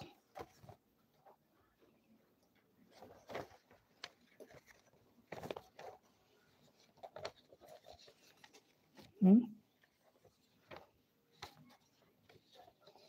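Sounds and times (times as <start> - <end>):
faint rustles and taps: 2.4 - 9.2.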